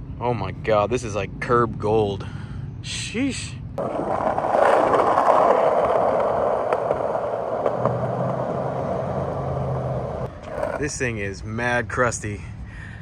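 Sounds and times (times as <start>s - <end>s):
skateboard wheels rolling on asphalt: 3.8s - 11.1s.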